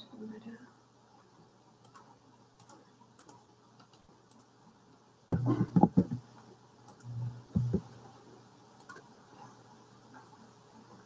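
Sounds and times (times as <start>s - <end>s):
keyboard and mouse clicks: 1.8s - 4.5s, 5.4s - 8.0s, 8.8s - 9.5s
knocks and rustling: 5.3s - 6.3s, 7.5s - 8.0s.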